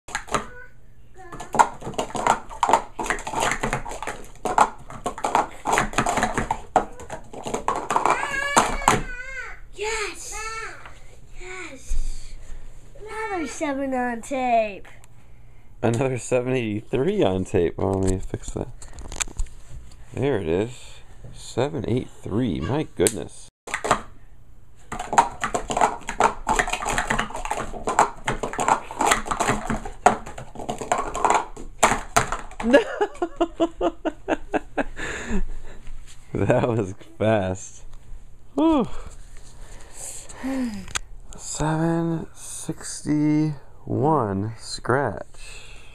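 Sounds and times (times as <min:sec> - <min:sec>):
plastic cups clacking: 0:00.1 - 0:00.6, 0:01.3 - 0:09.1, 0:23.7 - 0:24.1, 0:24.9 - 0:32.9.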